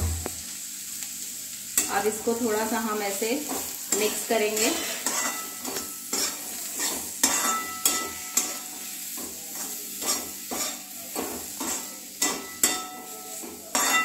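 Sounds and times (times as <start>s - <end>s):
food sizzling lightly: 0.0s - 14.0s
spatula scraping a pan: 3.4s - 14.0s.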